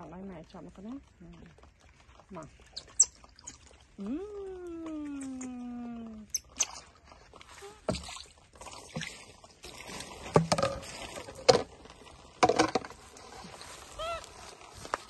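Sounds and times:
water sloshing: 0:00.0 - 0:15.0
plastic bowl knocks and clatters: 0:10.3 - 0:11.7, 0:12.4 - 0:13.0.

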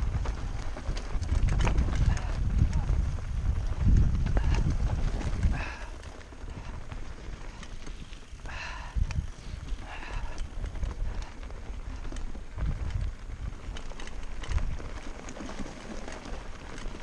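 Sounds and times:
bike tyres rattling on stones: 0:00.0 - 0:17.0
wind rumbling on microphone: 0:00.0 - 0:17.0.

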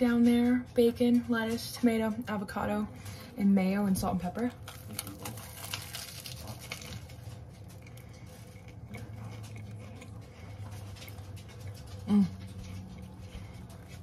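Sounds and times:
person chewing sandwich: 0:04.5 - 0:14.0.

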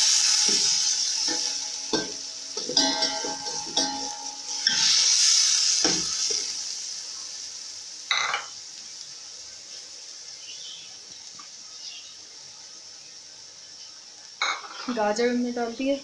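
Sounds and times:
food sizzling in hot oil: 0:00.0 - 0:16.0
metal spoon scraping a pan: 0:00.1 - 0:06.5, 0:14.4 - 0:15.0.

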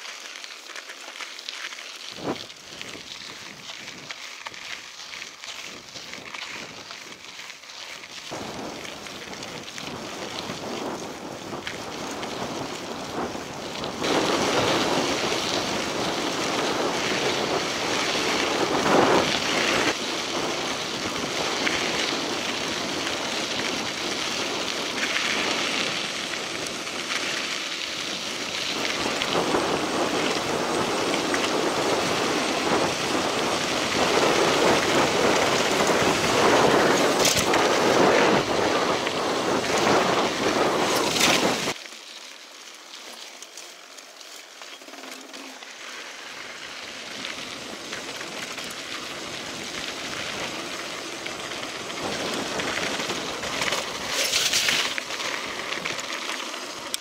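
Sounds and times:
tyres crunching on gravel: 0:00.0 - 0:57.0
wind buffeting microphone: 0:08.2 - 0:41.8, 0:47.0 - 0:54.1.

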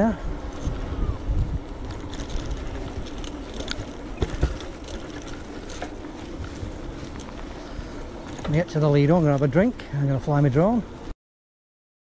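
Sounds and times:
faint steady hum: 0:00.0 - 0:11.1
tyres rumbling on path: 0:00.0 - 0:11.1
bike freewheel ticking and rattling: 0:01.6 - 0:09.6.

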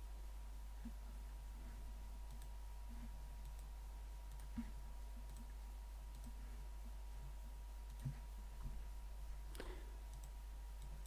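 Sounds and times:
low electrical hum: 0:00.0 - 0:11.0
computer mouse clicks: 0:02.2 - 0:06.4, 0:07.8 - 0:08.2, 0:09.5 - 0:11.0.

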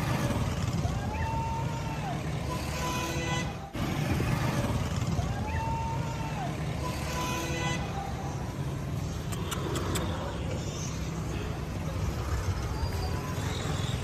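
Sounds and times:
road traffic rumble: 0:00.0 - 0:14.0
sharp clicks: 0:09.2 - 0:10.2.

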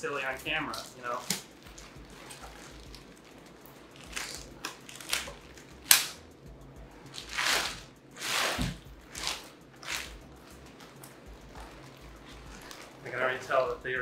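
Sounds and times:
plastic bag crinkling: 0:00.7 - 0:06.0.

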